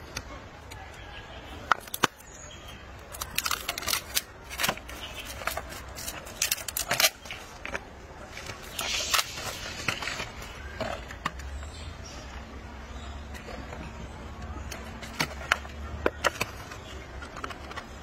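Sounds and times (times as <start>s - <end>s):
plastic bottle crinkling on stone: 1.7s - 11.6s.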